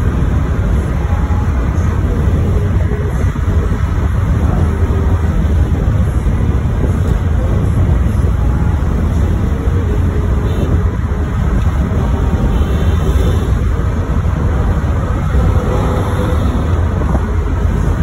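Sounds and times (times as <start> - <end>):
car cruising road noise: 0.0 - 18.0.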